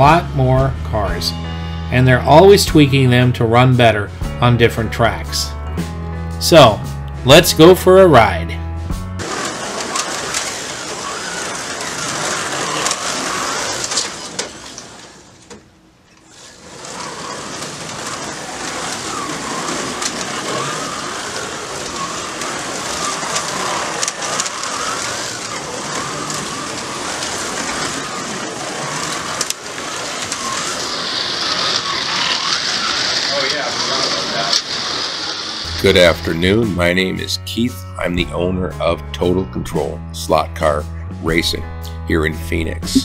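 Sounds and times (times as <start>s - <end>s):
slot car motors whining: 9.2s - 36.6s.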